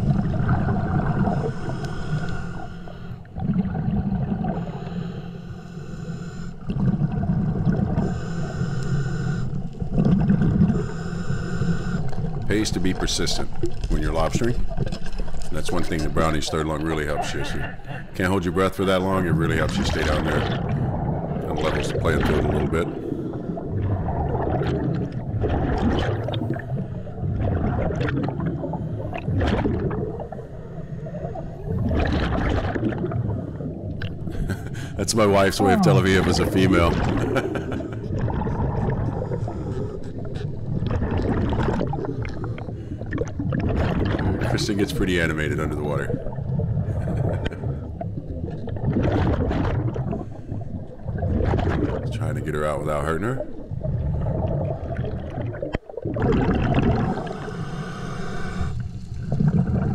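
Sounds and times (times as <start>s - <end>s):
muffled low water rumble: 0.0s - 59.9s
hissing breaths through regulator: 1.2s - 3.3s, 8.0s - 9.6s, 10.7s - 12.3s, 57.1s - 59.3s
bubbling exhalations: 12.2s - 59.9s.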